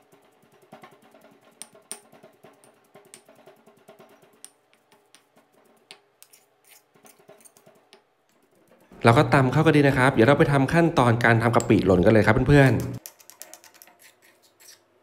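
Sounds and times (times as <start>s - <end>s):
spoon scraping through paste: 6.2s - 7.7s, 12.9s - 14.9s.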